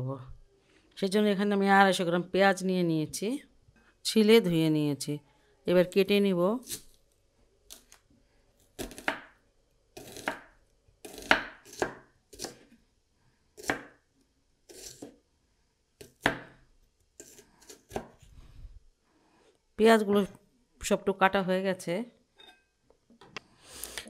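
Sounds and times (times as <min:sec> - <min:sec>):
knife cutting onions on wooden board: 0:08.7 - 0:09.4, 0:10.0 - 0:12.7, 0:13.6 - 0:14.0, 0:14.7 - 0:15.2, 0:17.2 - 0:18.2.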